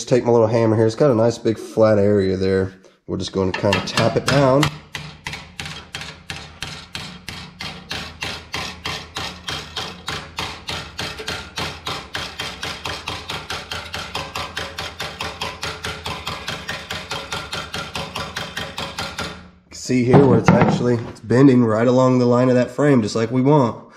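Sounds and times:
hammer tapping on sheet steel: 0:03.6 - 0:19.5.

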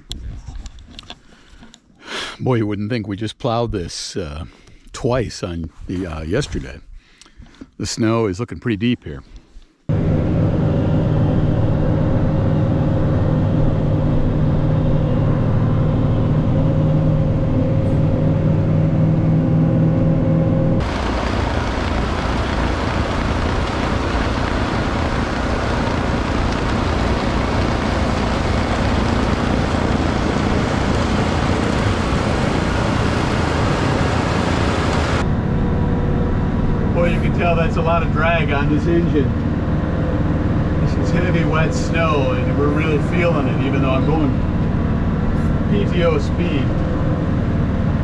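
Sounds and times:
snowblower rushing: 0:09.9 - 0:48.0
tractor engine under heavy load: 0:20.8 - 0:48.0.

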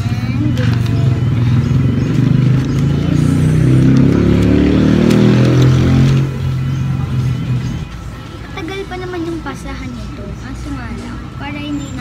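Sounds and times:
vehicle engine passing by: 0:00.0 - 0:08.0.

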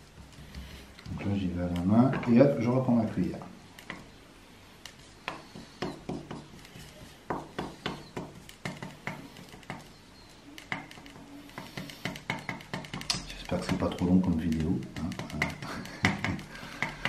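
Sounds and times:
metal spoon scraping on leaf: 0:04.9 - 0:17.0.

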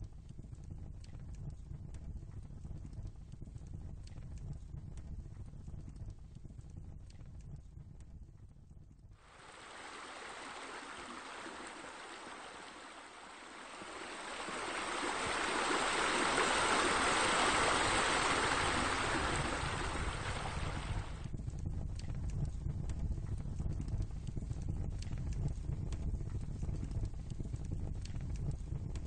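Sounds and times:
rushing running water: 0:09.2 - 0:21.3.

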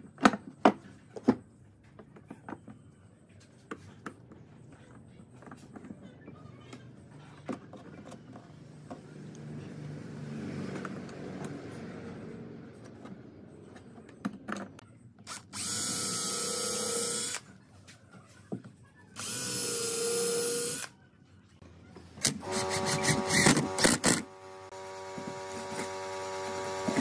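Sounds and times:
cordless drill running: 0:15.3 - 0:17.4, 0:19.2 - 0:20.9, 0:22.3 - 0:27.0.

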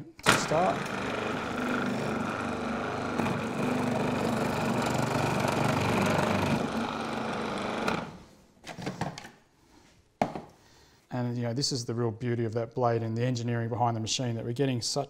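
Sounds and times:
food processor motor hum: 0:00.2 - 0:08.2.

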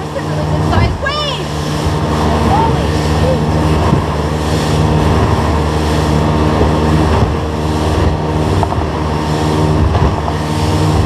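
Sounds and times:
outboard motor running: 0:00.0 - 0:11.0
wind and water rushing: 0:00.0 - 0:11.0.

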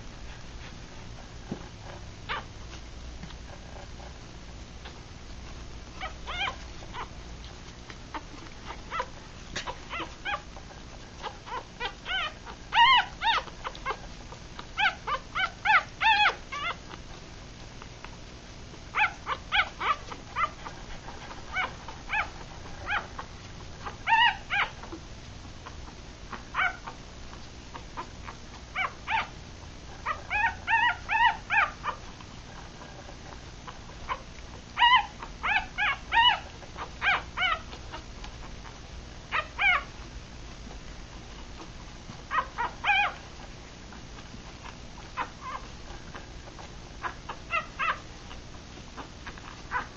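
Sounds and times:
puppies squeaking and whimpering: 0:01.8 - 0:02.5, 0:05.8 - 0:17.2, 0:18.9 - 0:25.0, 0:25.6 - 0:49.9.

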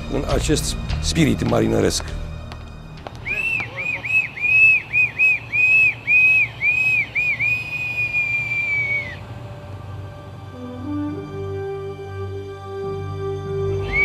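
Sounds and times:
bosun's pipe whistling: 0:03.2 - 0:09.2, 0:13.6 - 0:14.0.

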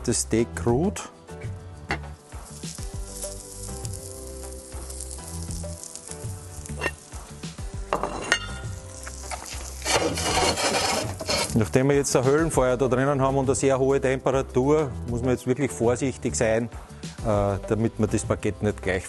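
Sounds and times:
background music with held notes: 0:00.0 - 0:19.0
wood fire sizzling and crackling: 0:02.1 - 0:12.2.

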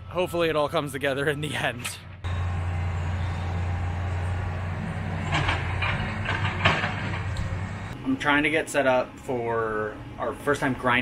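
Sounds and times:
excavator clanks and rattles: 0:01.8 - 0:08.0
excavator diesel engine droning: 0:02.2 - 0:08.2.

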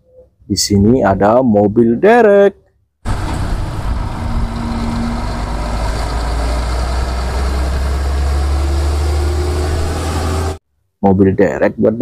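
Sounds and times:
truck diesel engine rumbling: 0:03.1 - 0:10.6.

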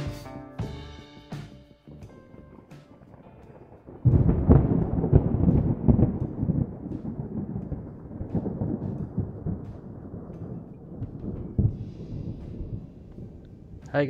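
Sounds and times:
low rumbling sound effect: 0:01.9 - 0:14.0
low hit: 0:03.9 - 0:13.6.

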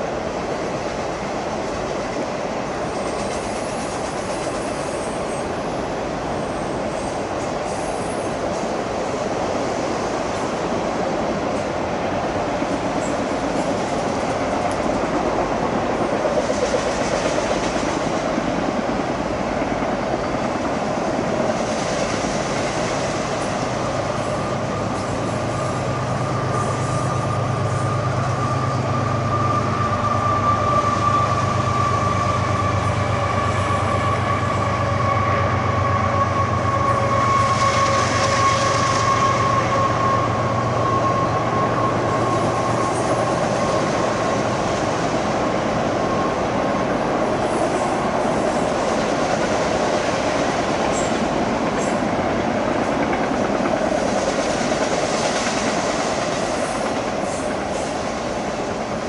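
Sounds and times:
freight train wheel and rail noise: 0:00.0 - 0:59.0
high-pitched squeal: 0:22.2 - 0:45.1.

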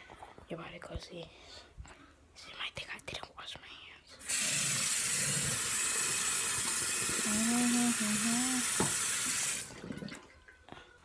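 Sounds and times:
tap water running into a sink: 0:04.2 - 0:10.6.

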